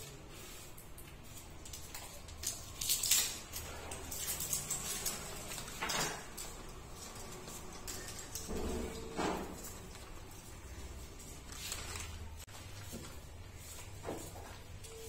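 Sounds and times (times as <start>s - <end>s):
plastic packet crinkling: 9.6s - 12.8s.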